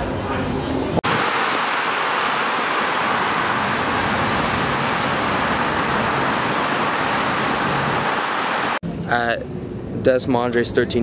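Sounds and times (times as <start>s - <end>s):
freeway traffic: 1.0s - 8.8s.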